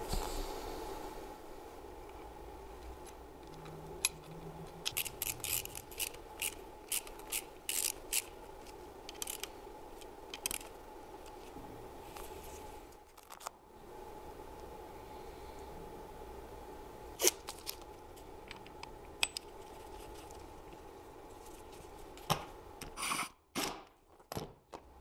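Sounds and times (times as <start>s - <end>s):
screwdriver scraping clicks: 3.0s - 11.4s.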